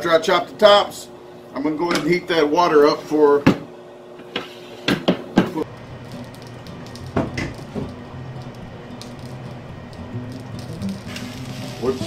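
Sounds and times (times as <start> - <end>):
steady low hum: 5.4 - 12.0.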